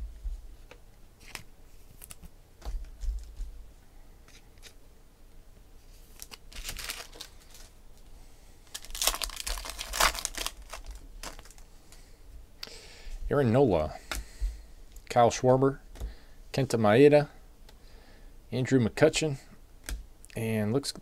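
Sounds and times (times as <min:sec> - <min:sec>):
wrapper rustling and tearing: 0:06.0 - 0:07.8, 0:08.6 - 0:11.7.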